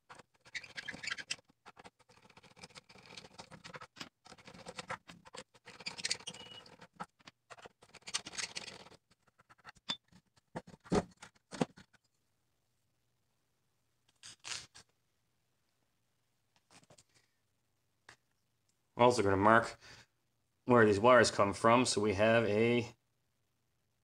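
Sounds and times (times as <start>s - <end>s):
screws rattling and clicking: 0.1s - 10.0s.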